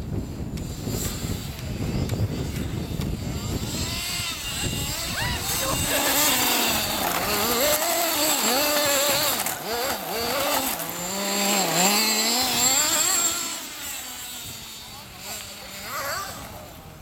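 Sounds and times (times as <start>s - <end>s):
rc car engine revving: 0.1s - 17.0s.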